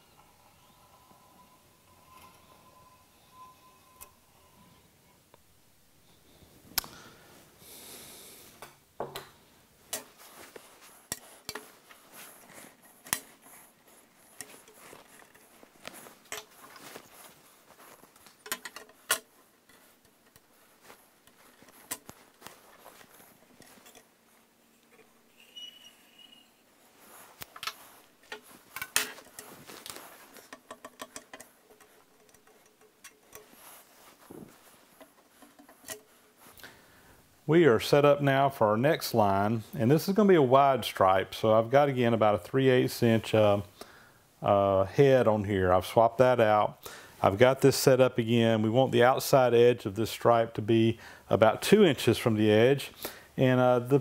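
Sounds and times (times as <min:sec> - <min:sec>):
tools clicking and tapping on metal: 0:11.1 - 0:11.8, 0:12.4 - 0:13.6, 0:14.4 - 0:17.0, 0:18.2 - 0:20.5, 0:21.2 - 0:22.6, 0:27.4 - 0:33.8, 0:35.0 - 0:36.6.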